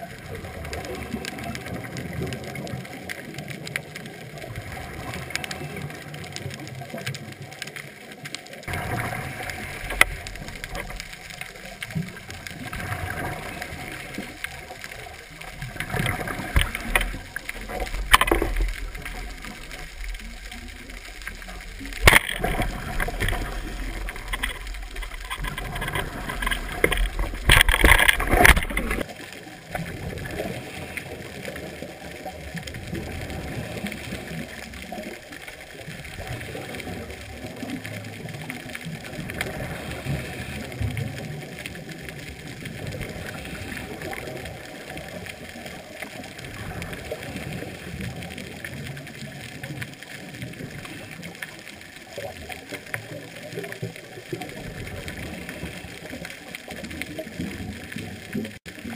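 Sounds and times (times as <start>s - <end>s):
muffled water murmur: 0.0s - 58.9s
low bubbling: 8.6s - 51.1s
rough underwater rumbling: 8.6s - 51.1s.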